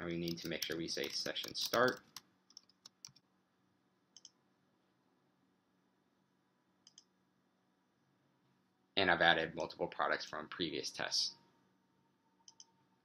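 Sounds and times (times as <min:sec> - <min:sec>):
faint computer keystrokes: 0:00.2 - 0:03.2, 0:04.1 - 0:04.4, 0:06.8 - 0:07.1, 0:12.4 - 0:12.8
mouse clicks: 0:06.8 - 0:07.1.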